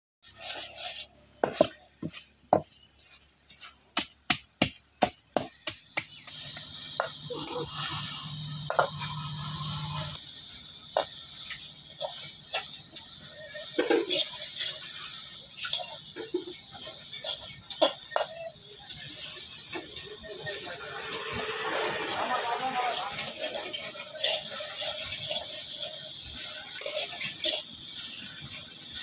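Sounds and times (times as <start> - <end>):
metal spatula scraping and tapping: 0.2 - 4.1, 8.6 - 9.5, 10.9 - 20.0, 22.8 - 29.0
food sizzling in a pan: 0.2 - 29.0.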